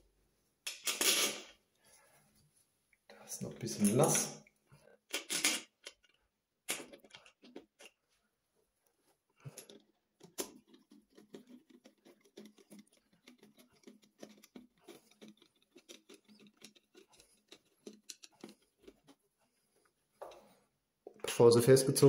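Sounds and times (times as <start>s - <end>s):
screwdriver clicks and scrapes: 9.5s - 19.2s.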